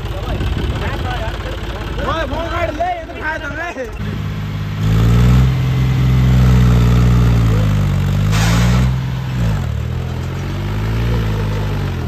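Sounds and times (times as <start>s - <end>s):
tractor diesel engine revving: 3.9s - 12.0s
brief hiss: 8.3s - 9.0s.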